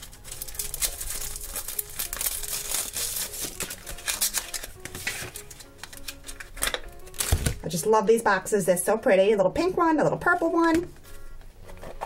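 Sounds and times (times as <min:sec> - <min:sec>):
packaging crinkling and crackling: 0:00.0 - 0:07.6.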